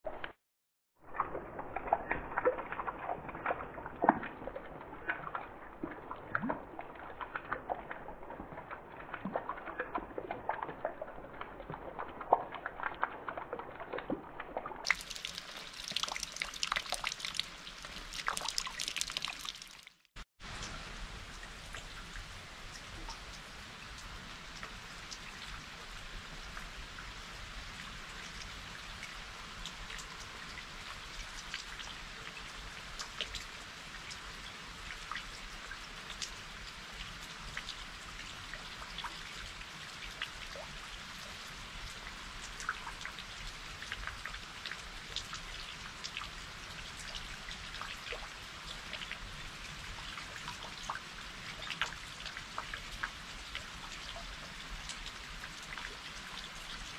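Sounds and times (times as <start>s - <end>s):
steady rain falling: 14.8s - 56.9s.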